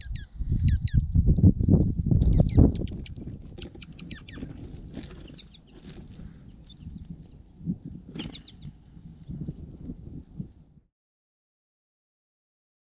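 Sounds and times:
wind rumble on microphone: 0.0s - 10.9s
songbirds chirping: 2.0s - 9.4s.

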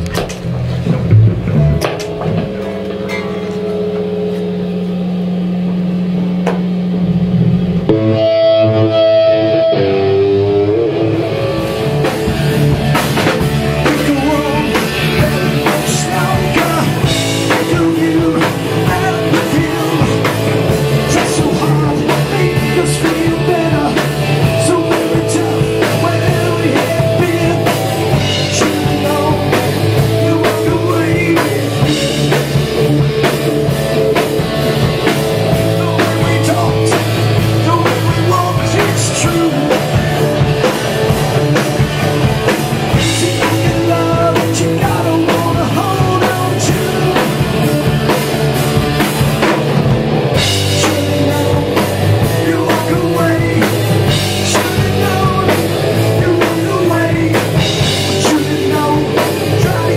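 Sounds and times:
hard rock band playing: 0.0s - 59.9s
man singing: 13.2s - 33.6s, 35.5s - 42.1s, 42.8s - 48.1s, 50.4s - 59.9s.

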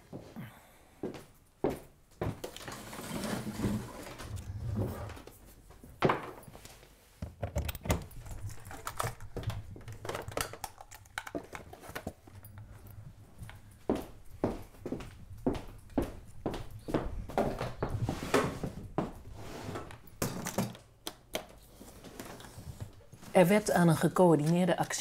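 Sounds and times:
keyboard and cables clicking: 7.4s - 12.7s.

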